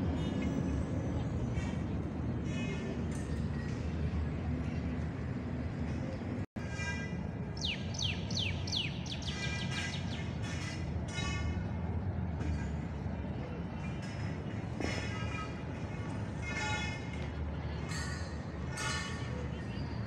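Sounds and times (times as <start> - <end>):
city traffic rumble: 0.0 - 20.0
birds calling: 7.5 - 11.3.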